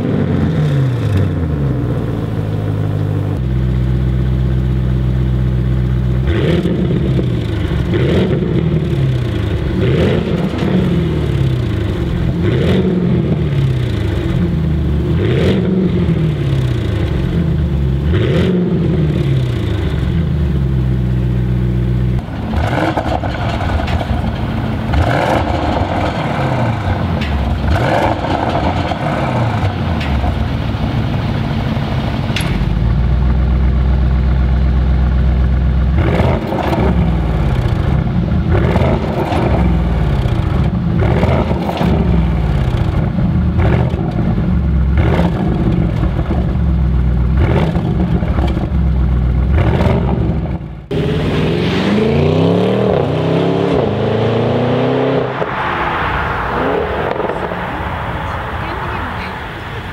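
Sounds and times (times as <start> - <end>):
car engine revving: 0.0 - 59.9
car accelerating with upshifts: 6.2 - 24.2, 24.8 - 30.4, 36.0 - 48.8, 49.4 - 59.9.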